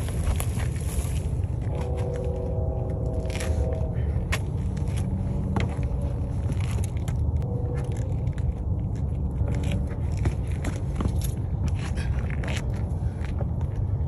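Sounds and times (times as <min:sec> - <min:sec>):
clicks and scuffs on rocks: 0:09.4 - 0:13.4.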